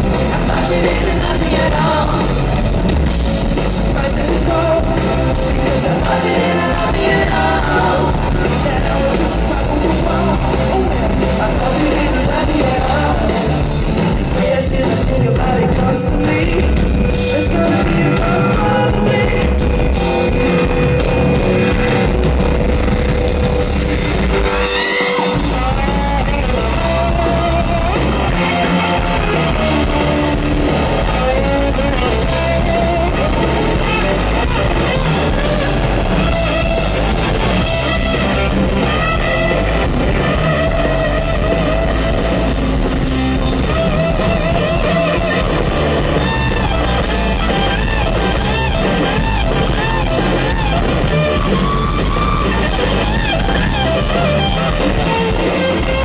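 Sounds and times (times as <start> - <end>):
bass guitar: 0.0 - 56.0
drums: 0.0 - 56.0
electric guitar solo: 17.1 - 56.0.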